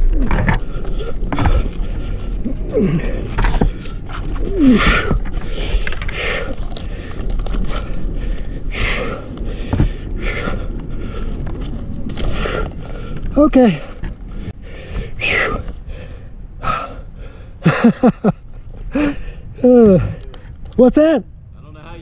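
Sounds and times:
climber scraping against bark: 0.0s - 16.8s.

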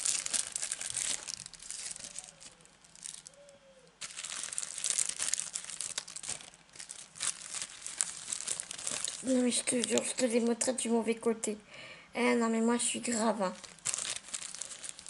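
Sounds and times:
plastic sheets crinkling: 0.0s - 10.6s, 13.1s - 15.0s.

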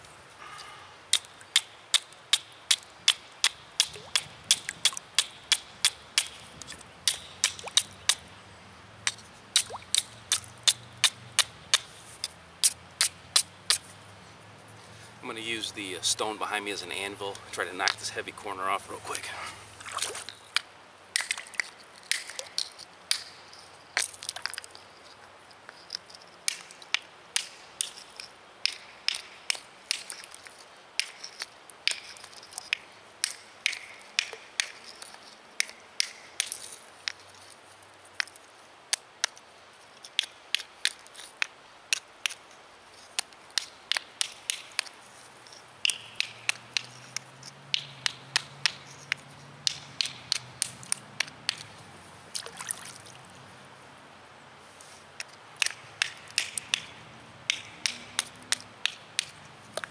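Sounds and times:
stone clacking on stone: 43.1s - 51.7s.

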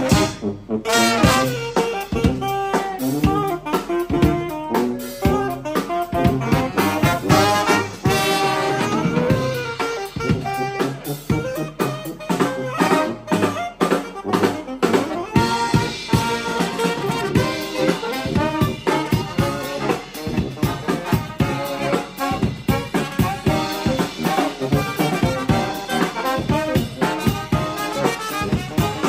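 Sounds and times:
brass band playing: 0.0s - 29.0s.

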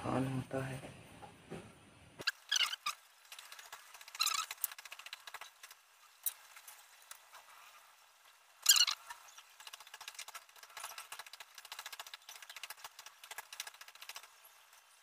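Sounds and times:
metal squeaks and rattles: 2.2s - 5.3s, 8.6s - 12.8s.

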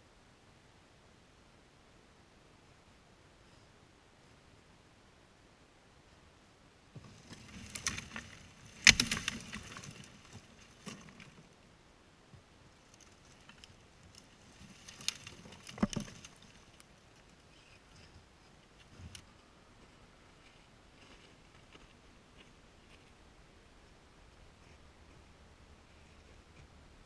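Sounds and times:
twigs crackling: 7.0s - 11.6s, 12.8s - 18.1s
dead branches cracking and snapping: 7.1s - 11.4s, 12.9s - 16.8s.

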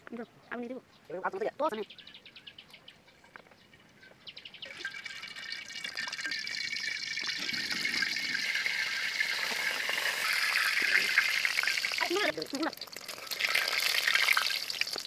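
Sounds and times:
oil sizzling in a wok: 4.8s - 15.0s.

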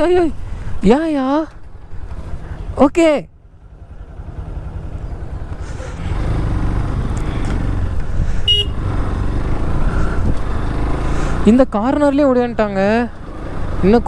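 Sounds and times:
motorcycle engine rumble: 0.0s - 14.0s
horn toot: 8.4s - 8.8s.

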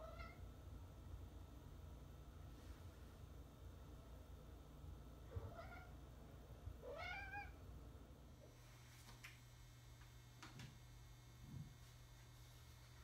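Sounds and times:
cat meowing: 0.0s - 0.4s, 5.4s - 5.9s, 6.8s - 7.6s.

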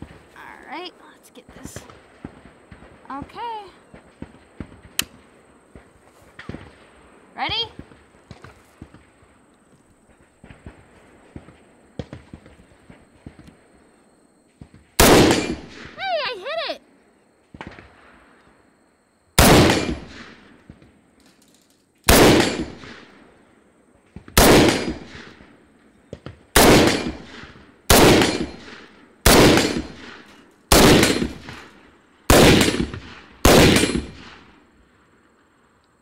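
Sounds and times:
rifle shots with ringing echo: 14.8s - 16.0s, 19.4s - 20.8s, 22.0s - 34.7s.

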